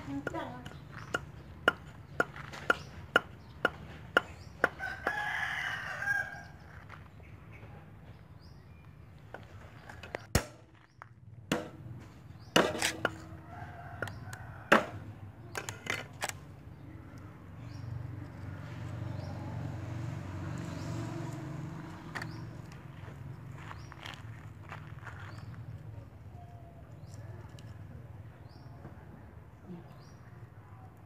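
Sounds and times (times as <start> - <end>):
cleaver chopping on wooden block: 0.2 - 5.2, 11.5 - 13.3, 14.0 - 15.1
rooster crowing: 4.7 - 6.6, 13.2 - 15.1.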